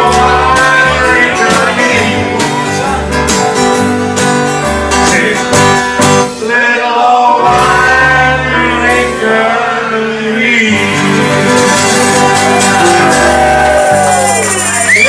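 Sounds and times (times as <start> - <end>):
man singing: 0.0 - 3.5, 5.0 - 13.4
acoustic guitar strumming: 0.0 - 15.0
country band playing: 0.0 - 15.0.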